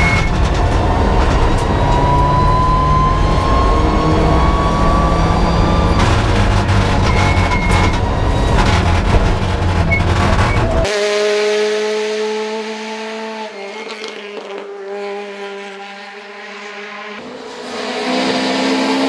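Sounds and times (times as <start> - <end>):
car pulling away: 0.0 - 10.9
rally car engine at high revs: 0.0 - 19.0
road and drivetrain rumble: 0.0 - 19.0.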